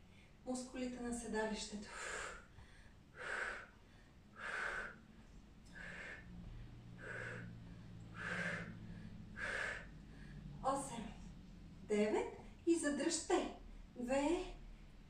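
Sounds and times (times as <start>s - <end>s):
woman exhaling hard: 4.4s - 5.0s, 5.8s - 6.2s, 7.0s - 7.5s, 8.1s - 10.4s.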